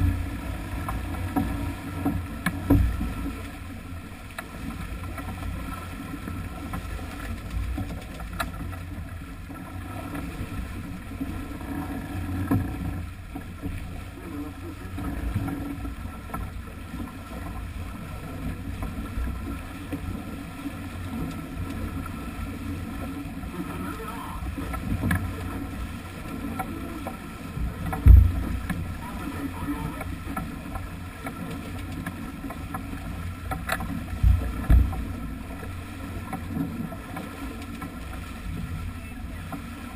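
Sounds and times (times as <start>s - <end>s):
water rushing past bow: 0.0s - 39.9s
heavy low thump: 27.6s - 28.9s, 34.2s - 35.1s.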